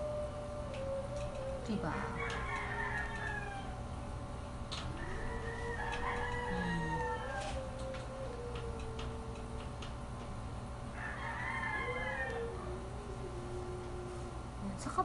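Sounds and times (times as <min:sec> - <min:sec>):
rooster crowing: 0:01.9 - 0:04.0, 0:04.8 - 0:09.7, 0:10.9 - 0:14.1.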